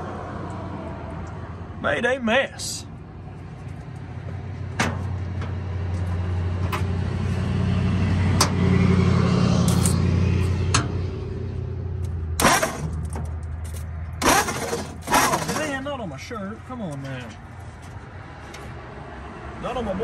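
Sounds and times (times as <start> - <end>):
engine starter cranking: 12.4 - 13.2, 14.2 - 15.8.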